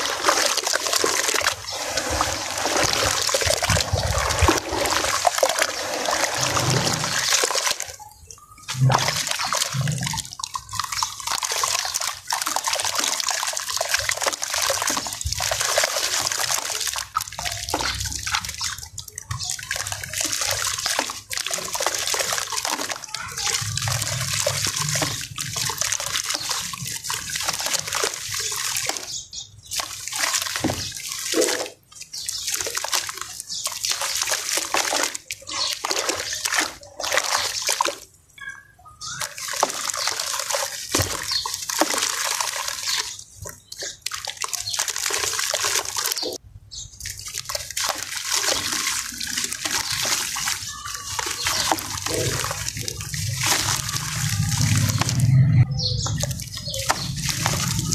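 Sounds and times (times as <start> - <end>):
sand pouring into water: 0.0 - 7.9, 47.1 - 55.4, 56.2 - 57.9.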